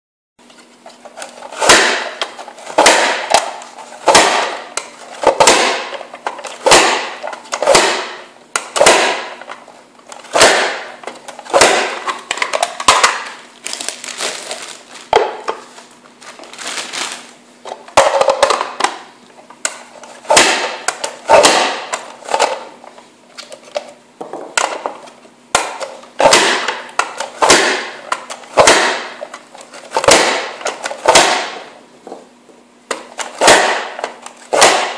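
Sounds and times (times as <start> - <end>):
vegetable chopper clacking: 1.4 - 14.4, 19.6 - 22.7, 25.5 - 31.6, 32.9 - 34.9.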